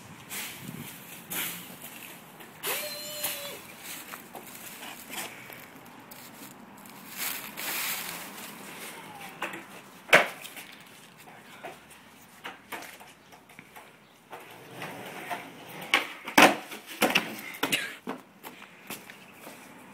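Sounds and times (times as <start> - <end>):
skateboard popping on concrete: 9.4 - 10.6, 14.3 - 18.2.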